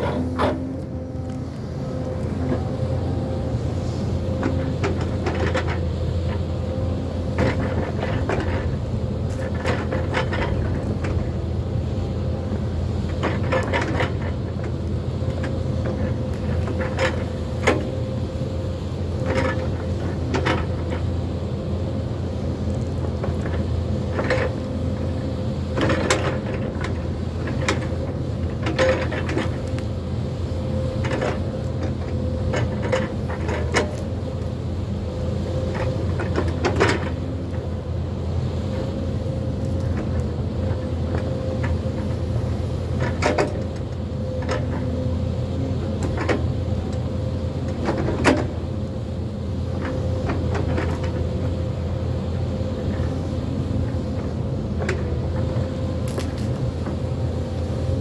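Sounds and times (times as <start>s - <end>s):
engine whine: 0.0s - 58.0s
excavator diesel engine running: 0.0s - 58.0s
grapple cracking branches: 56.0s - 56.6s.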